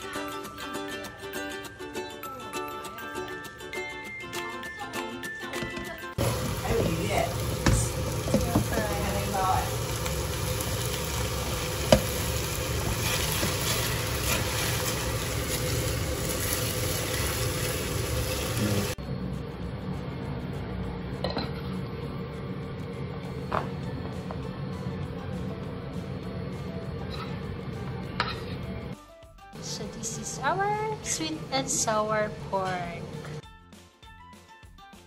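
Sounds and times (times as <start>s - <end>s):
food sizzling in a frying pan: 6.2s - 19.0s
spatula stirring in pan: 12.7s - 15.1s.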